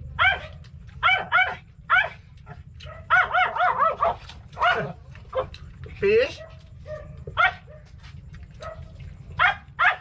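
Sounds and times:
small dog yapping: 0:00.2 - 0:02.2, 0:02.8 - 0:05.6, 0:06.4 - 0:07.9, 0:08.6 - 0:10.0.

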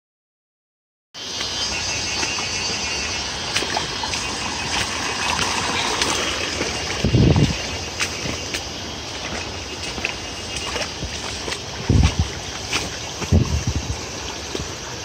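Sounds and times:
stream rushing over stones: 0:01.2 - 0:15.0
low rumble on microphone: 0:03.8 - 0:08.5, 0:09.2 - 0:15.0.

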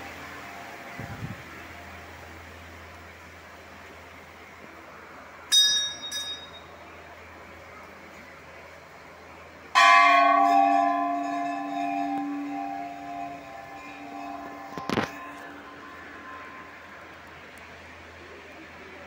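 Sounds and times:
high double bell ring: 0:05.5 - 0:06.8, 0:09.8 - 0:17.3
deep bell struck: 0:09.8 - 0:17.4.

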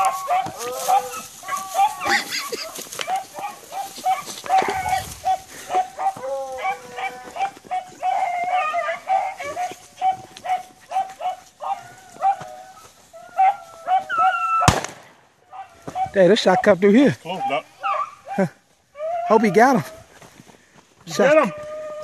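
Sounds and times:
beagles baying: 0:00.0 - 0:14.8, 0:15.4 - 0:20.2.

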